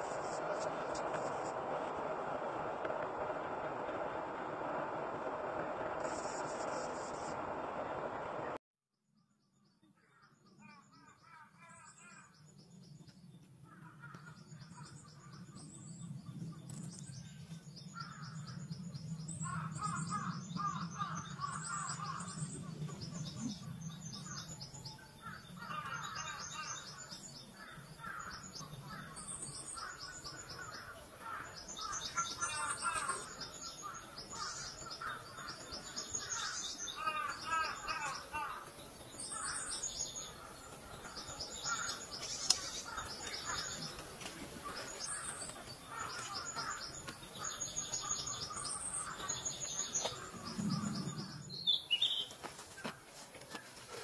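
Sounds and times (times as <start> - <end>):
lower bird chirping calls: 9.8 - 52.4.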